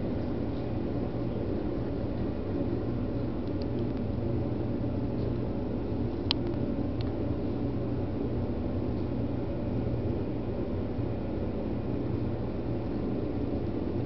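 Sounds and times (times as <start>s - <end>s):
low rumble and hum: 0.0s - 14.0s.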